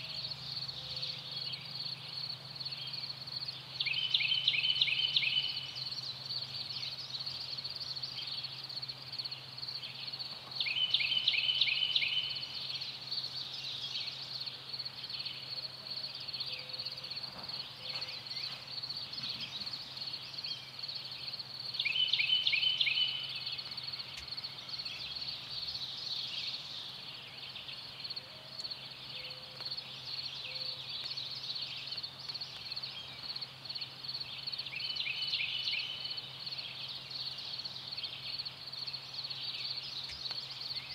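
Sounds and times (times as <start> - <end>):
songbird singing: 0.0 - 40.9.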